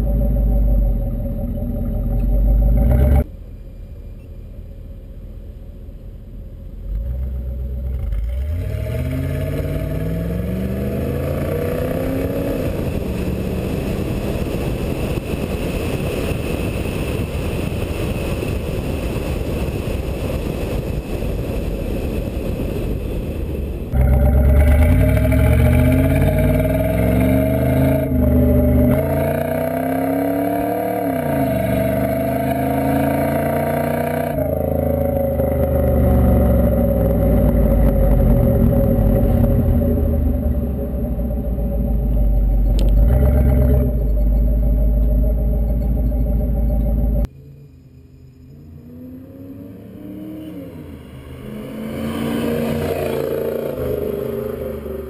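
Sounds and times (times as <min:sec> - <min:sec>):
car engine revving through gears: 0:00.0 - 0:03.3, 0:06.9 - 0:16.2, 0:23.9 - 0:47.3, 0:48.8 - 0:55.0
rushing wind noise: 0:09.0 - 0:44.3.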